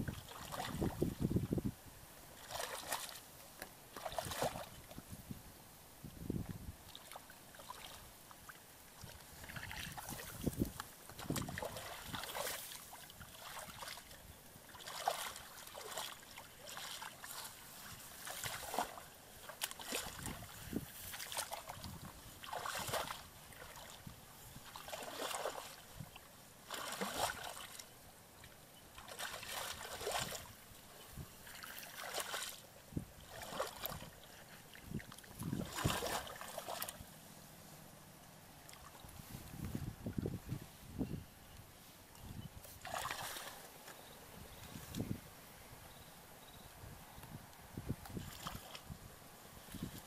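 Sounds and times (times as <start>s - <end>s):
muddy water splashing: 0.0s - 1.2s, 2.4s - 3.3s, 3.9s - 5.0s, 6.9s - 37.1s, 42.6s - 44.0s, 48.0s - 49.0s.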